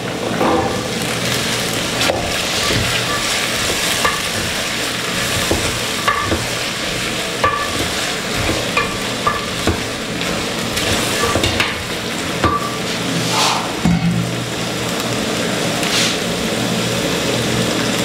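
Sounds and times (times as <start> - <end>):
vegetables sizzling in oil: 0.0 - 18.0
wooden spoon knocking on pot: 5.2 - 9.9, 12.4 - 12.8.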